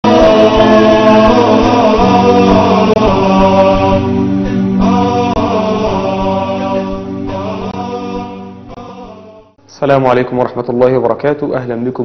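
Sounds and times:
voices chanting in harmony: 0.0 - 9.6.

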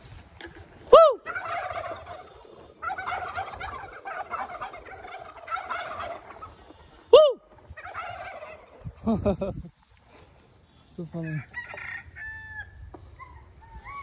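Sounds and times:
turkeys gobbling: 0.4 - 9.4, 11.3 - 14.0
person whooping: 0.9 - 1.3, 7.1 - 7.5.

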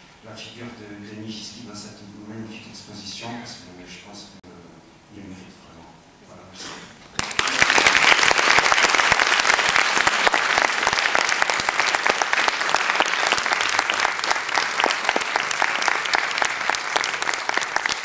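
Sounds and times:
audience applauding: 7.2 - 18.0.

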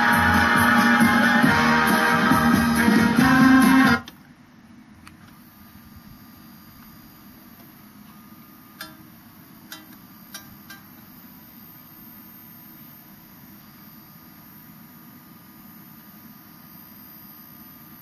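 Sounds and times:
turntable motor humming: 0.0 - 4.3, 5.0 - 16.2
tonearm light clicks: 8.8 - 9.0, 9.7 - 10.9.

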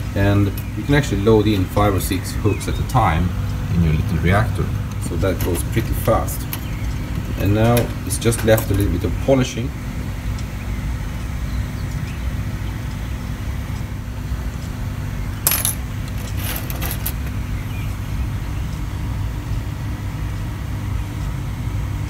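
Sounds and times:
steady low hum: 0.0 - 22.0
fishing hooks clinking: 15.5 - 17.3.

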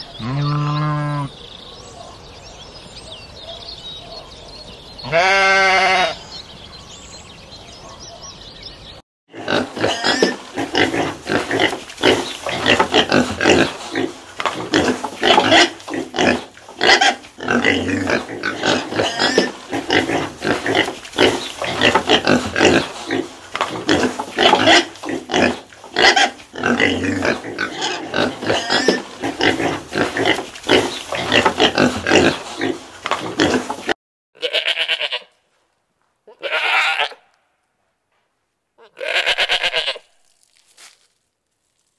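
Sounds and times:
pigs grunting and squealing: 0.0 - 1.3, 9.3 - 35.1
goats bleating: 0.2 - 1.3, 5.0 - 6.2, 34.4 - 35.3, 36.3 - 37.3, 38.8 - 40.1.

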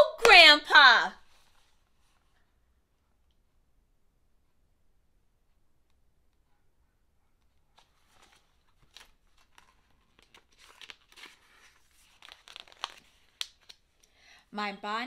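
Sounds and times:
book pages rustling: 1.2 - 2.4, 7.4 - 14.1.

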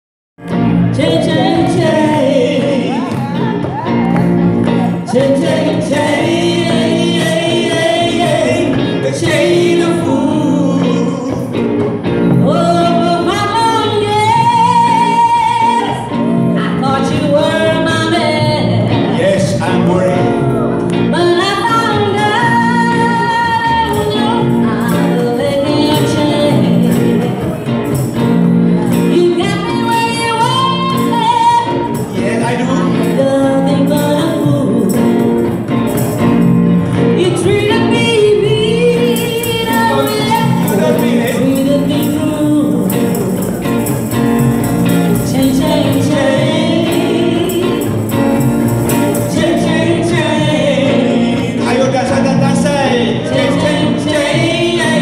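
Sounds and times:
electric guitars: 0.4 - 55.0
woman singing into a microphone: 0.8 - 4.1, 4.9 - 11.6, 12.3 - 19.2, 20.3 - 27.5, 29.0 - 35.6, 37.1 - 43.7, 44.8 - 48.2, 48.9 - 51.8, 53.1 - 55.0
cajon: 1.0 - 16.0.

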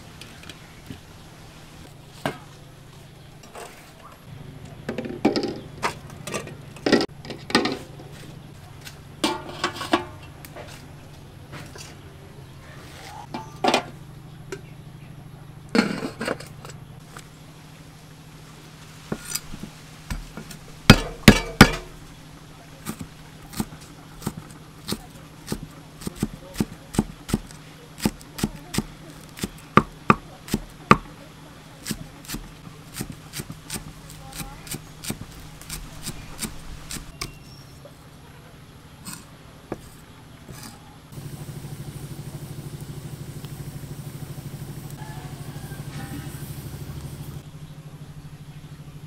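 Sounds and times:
cleaver chopping on wooden block: 22.8 - 31.1.

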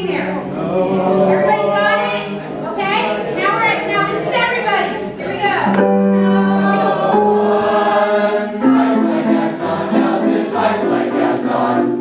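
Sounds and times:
choral singing: 0.0 - 4.7, 5.6 - 12.0.

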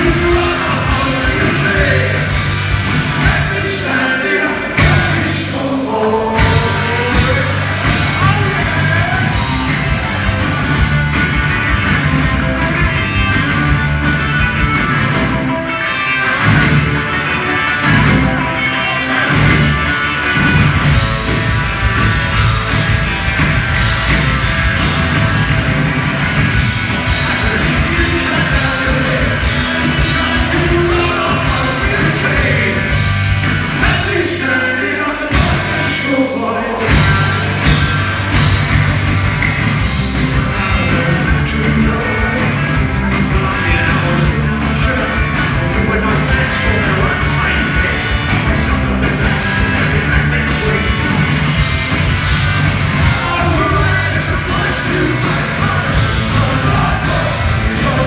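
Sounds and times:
man singing lead vocal: 0.0 - 9.6, 27.1 - 33.2, 33.8 - 38.0, 40.3 - 51.5, 53.0 - 58.0
bass guitar: 0.0 - 58.0
drums: 0.0 - 58.0
electric guitar: 0.0 - 58.0.

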